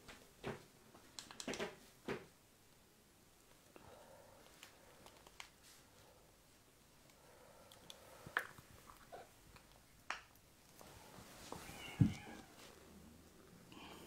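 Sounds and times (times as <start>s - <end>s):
cat meowing: 11.6s - 12.6s.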